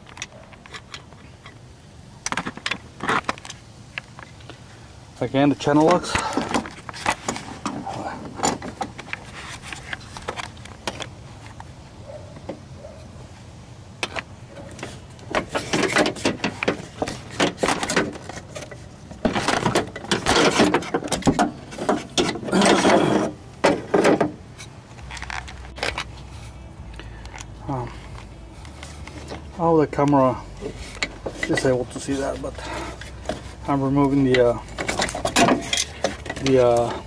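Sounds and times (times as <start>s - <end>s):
metal clatter: 14.7s - 24.4s, 30.6s - 37.0s.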